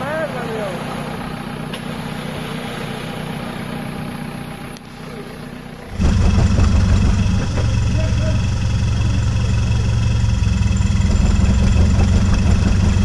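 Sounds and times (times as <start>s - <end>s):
engine running steadily: 0.0s - 13.0s
louder lower engine idling: 0.0s - 13.0s.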